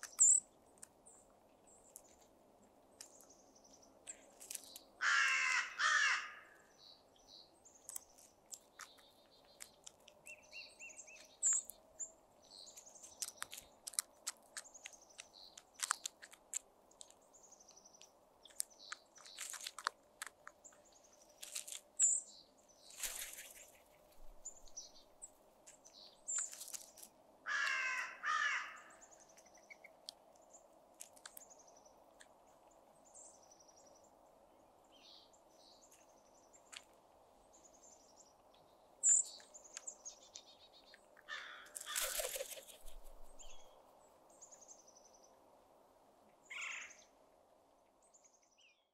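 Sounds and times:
crows pecking on gravel: 0:00.0 - 0:34.0, 0:35.4 - 0:43.8
small birds chirping: 0:00.0 - 0:48.9
crow cawing: 0:05.0 - 0:06.6, 0:27.4 - 0:29.0, 0:41.3 - 0:42.2, 0:46.5 - 0:47.0.

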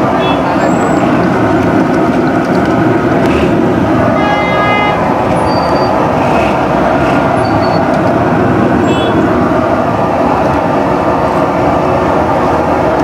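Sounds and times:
loud street traffic: 0:00.0 - 0:13.0
vehicle horn: 0:04.1 - 0:06.6, 0:08.8 - 0:09.3.

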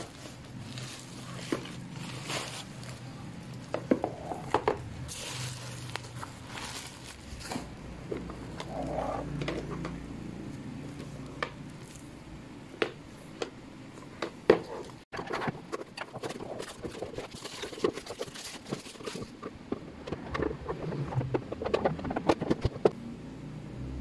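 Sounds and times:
plastic film crinkling: 0:00.0 - 0:04.5, 0:05.1 - 0:07.8, 0:16.2 - 0:19.4.

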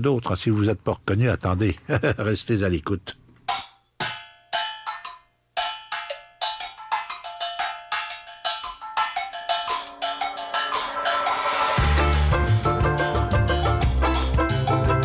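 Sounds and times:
bell-like percussion strikes: 0:03.5 - 0:13.6.

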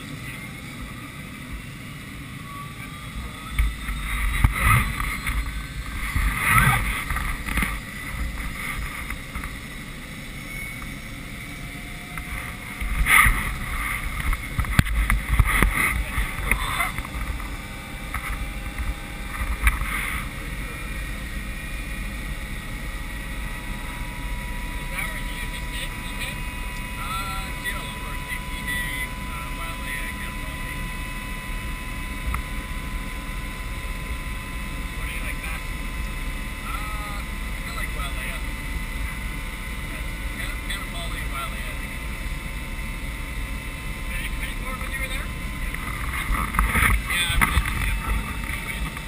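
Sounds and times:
helicopter turbine whine: 0:00.0 - 0:49.0
gusty buffeting: 0:03.1 - 0:10.0.

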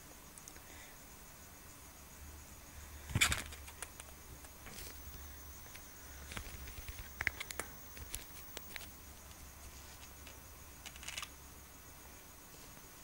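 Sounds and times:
low steady hum: 0:00.0 - 0:13.0
faint ticks and scratches: 0:03.1 - 0:11.4.

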